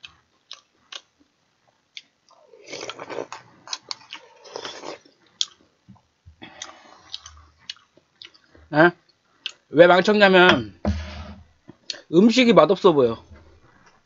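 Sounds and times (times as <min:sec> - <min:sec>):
chewing: 0:01.9 - 0:05.6, 0:06.5 - 0:08.6.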